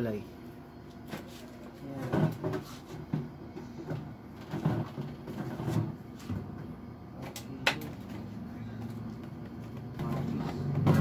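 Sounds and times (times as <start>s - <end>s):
containers knocking on shelves: 9.9s - 11.0s.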